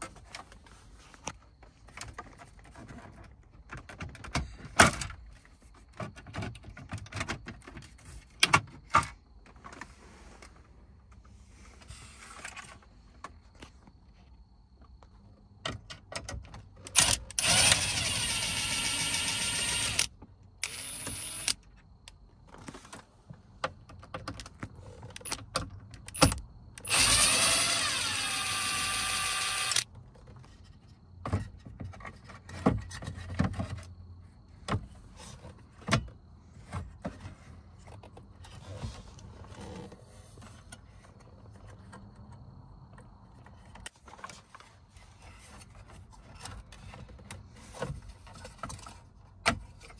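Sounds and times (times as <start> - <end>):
plastic parts clicking and knocking: 1.2 - 9.8, 15.6 - 23.0, 23.6 - 30.4
cordless drill running: 17.0 - 21.6, 26.8 - 29.8.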